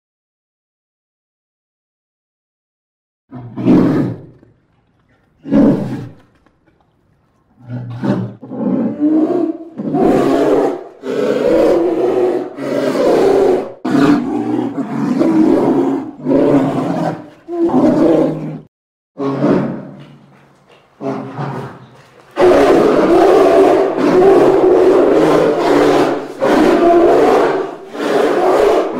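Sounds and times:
polar bear roaring: 3.3 - 4.5, 5.4 - 6.3, 7.6 - 20.0, 21.0 - 28.9.

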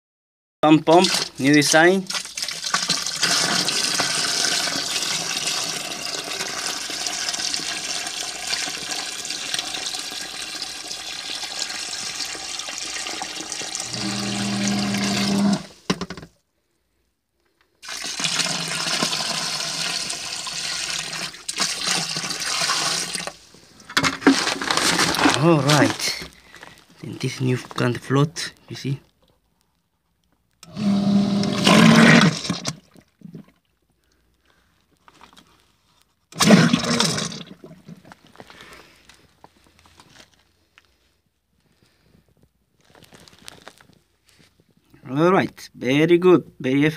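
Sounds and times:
water gushing into a pit: 0.9 - 15.7, 17.8 - 23.4, 30.7 - 33.5, 36.4 - 38.4.

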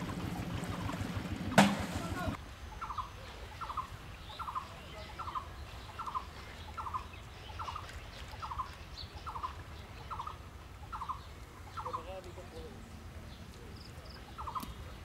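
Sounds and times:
low steady rumble: 0.0 - 2.4.

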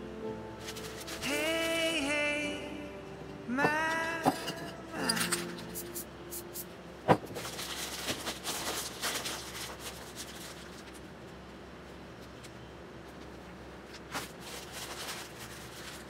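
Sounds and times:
paper rustling and scraping: 0.6 - 1.9, 7.3 - 11.1, 12.2 - 16.0.

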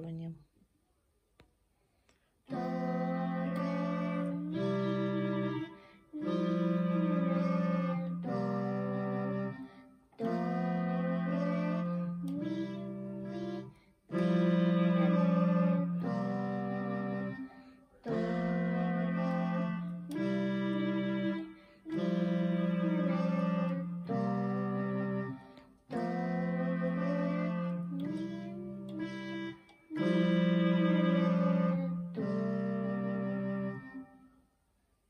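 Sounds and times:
child singing: 2.5 - 34.0
electronic keyboard melody: 2.5 - 34.4.

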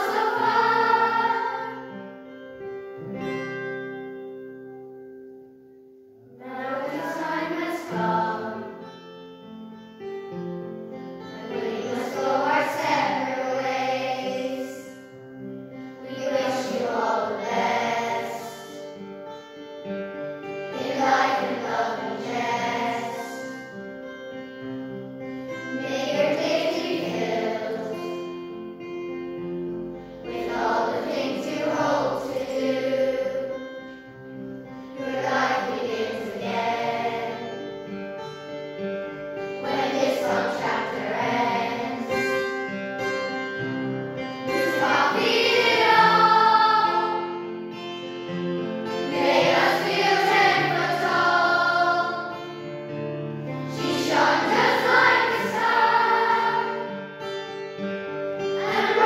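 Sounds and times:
children's choir singing: 0.0 - 2.1, 6.3 - 9.0, 11.3 - 15.2, 16.0 - 19.0, 20.5 - 23.8, 25.6 - 28.2, 30.1 - 34.0, 34.8 - 37.9, 39.4 - 42.6, 44.4 - 47.8, 48.6 - 57.2, 58.4 - 59.0
instrumental accompaniment: 0.0 - 14.2, 14.8 - 59.0.

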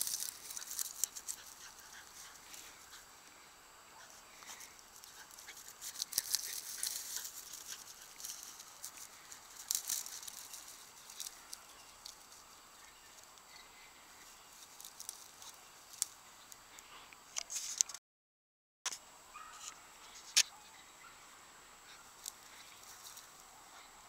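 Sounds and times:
dry grass crackling underfoot: 0.0 - 3.4, 4.0 - 16.9, 21.8 - 23.9.

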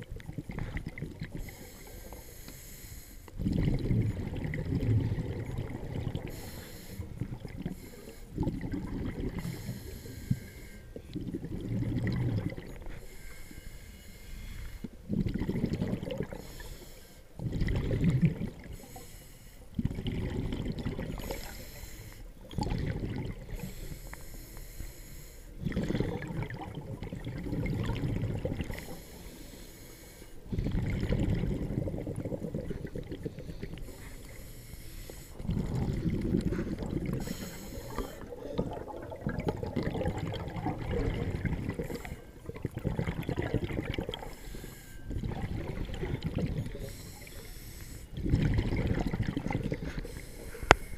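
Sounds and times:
regulator inhale hiss: 1.4 - 3.3, 6.3 - 8.4, 9.4 - 11.0, 12.9 - 14.9, 16.4 - 17.4, 18.8 - 19.8, 21.2 - 22.3, 23.5 - 25.6, 28.7 - 30.5, 33.4 - 35.4, 36.5 - 38.6, 44.2 - 45.1, 46.8 - 48.2, 49.9 - 50.9
exhaled bubbles rushing: 3.4 - 6.3, 7.1 - 7.8, 8.4 - 9.6, 11.1 - 12.9, 15.1 - 16.4, 17.4 - 18.8, 19.8 - 21.4, 22.4 - 23.6, 25.6 - 29.0, 30.5 - 33.9, 35.3 - 44.4, 45.1 - 47.0, 48.1 - 50.2.

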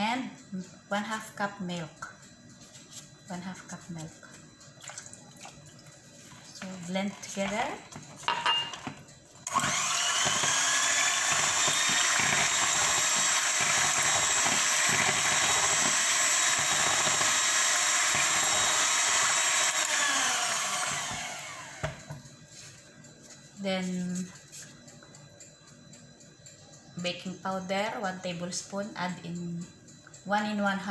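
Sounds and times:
electric mixer whirring: 9.4 - 22.2.

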